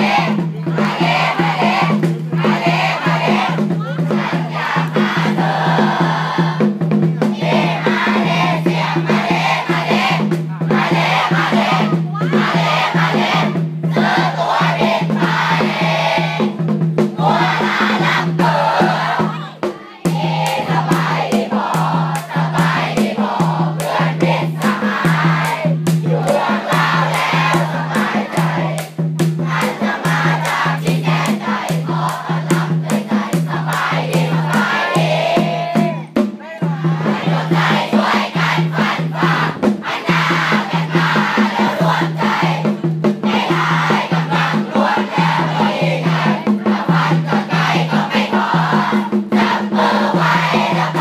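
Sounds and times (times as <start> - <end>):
crowd chanting cheers: 0.0 - 6.6, 17.2 - 28.9, 29.5 - 42.6, 43.3 - 51.0
steady drum beat: 0.0 - 51.0.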